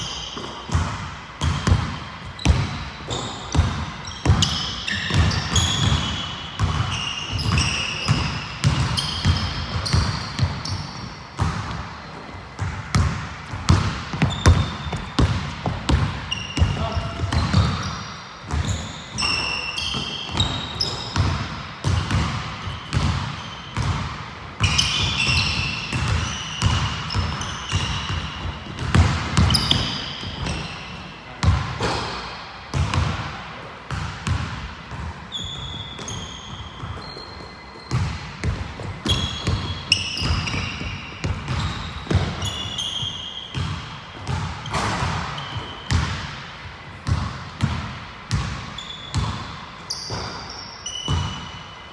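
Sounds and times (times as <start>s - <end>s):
sneakers squeaking on court: 0.0s - 51.9s
basketball bouncing on wooden floor: 0.4s - 11.8s, 12.5s - 18.9s, 19.9s - 30.8s, 37.9s - 42.6s, 43.5s - 46.3s, 47.0s - 49.4s, 51.1s - 51.4s.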